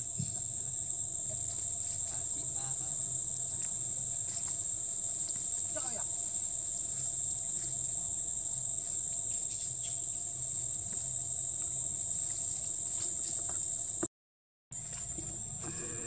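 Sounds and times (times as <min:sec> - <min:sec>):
insects buzzing: 0:00.0 - 0:14.1, 0:14.8 - 0:16.0.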